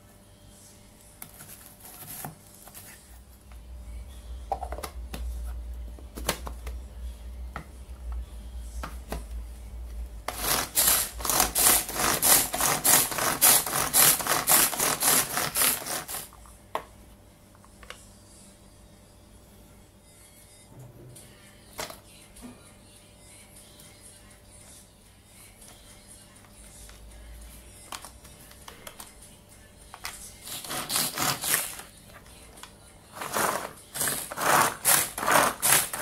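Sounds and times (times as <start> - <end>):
knocks handling plastic bowl: 4.5 - 5.3
food chopper cord whirring blades: 10.3 - 16.3, 33.2 - 36.0.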